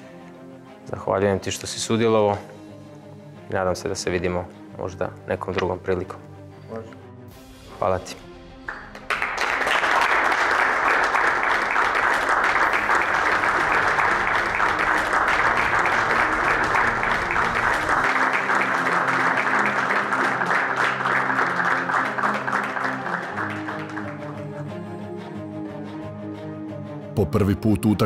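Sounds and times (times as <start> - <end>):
background music: 0.0 - 28.0
people applauding: 8.7 - 25.0.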